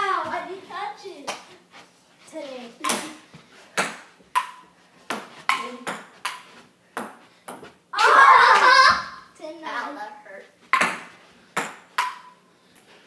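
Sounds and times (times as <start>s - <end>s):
ping-pong ball hits: 2.8s - 3.2s, 3.8s - 7.6s, 10.7s - 12.4s.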